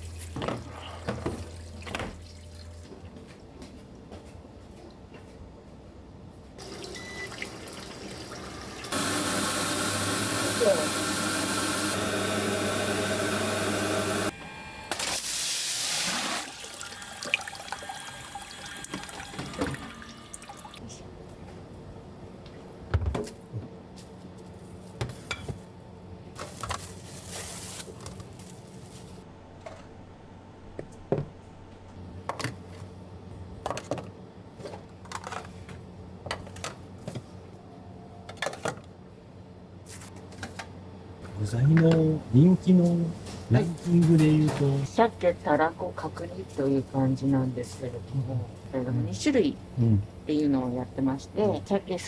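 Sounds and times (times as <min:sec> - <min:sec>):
water running from tap: 0:06.6 - 0:12.7, 0:15.2 - 0:20.8.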